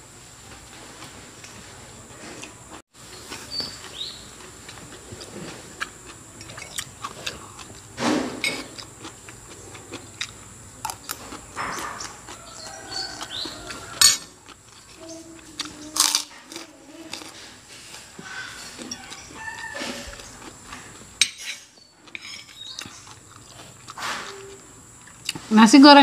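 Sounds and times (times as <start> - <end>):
cutlery clinking on a ceramic plate: 13.7 - 14.4, 21.2 - 23.0.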